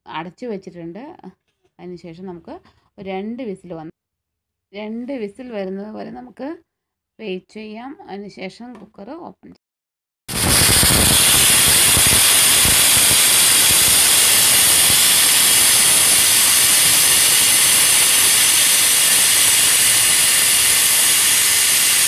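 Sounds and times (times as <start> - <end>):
low sputter: 10.3 - 22.0
pressure cooker whistle hissing: 10.3 - 22.0.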